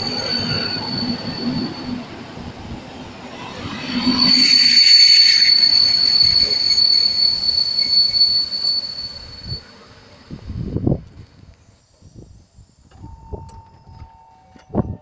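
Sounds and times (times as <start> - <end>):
train wheels squealing: 0.0 - 10.7
wheels rumbling on rail: 0.0 - 15.0.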